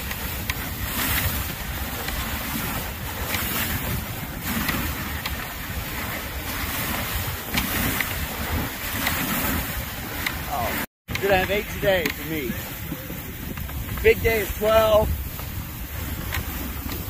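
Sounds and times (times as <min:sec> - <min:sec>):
wind rumble on microphone: 0:00.0 - 0:17.0
sled runners hissing over snow: 0:11.5 - 0:17.0.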